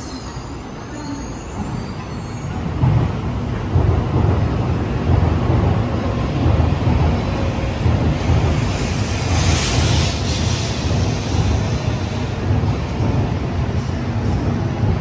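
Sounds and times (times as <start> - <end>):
train rumbling past with air rush: 0.0 - 15.0.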